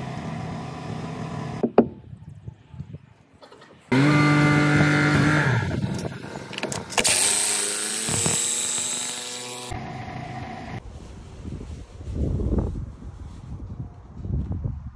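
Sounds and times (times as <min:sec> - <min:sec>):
impact driver running: 0:06.9 - 0:09.8.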